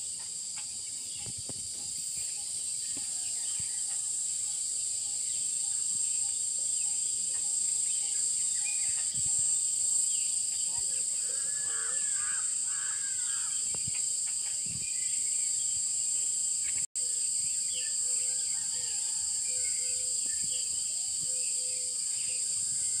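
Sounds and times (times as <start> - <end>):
high-pitched insect drone: 0.0 - 23.0
bird calls: 10.2 - 15.6, 17.8 - 23.0
crows cawing: 11.2 - 13.6.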